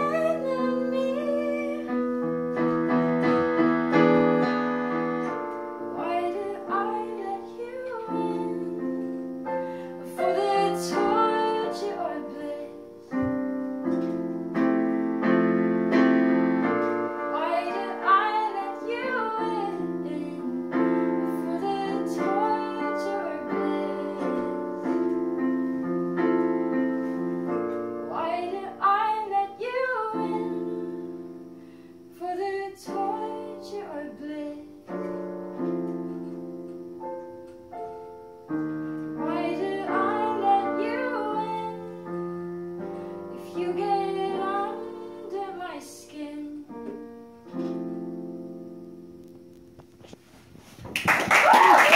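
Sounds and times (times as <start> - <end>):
woman singing: 0.0 - 2.1, 5.8 - 9.4, 10.0 - 13.1, 17.2 - 25.2, 28.0 - 31.2, 32.1 - 35.2, 39.2 - 42.2, 43.3 - 47.0
digital piano chords: 0.0 - 50.3.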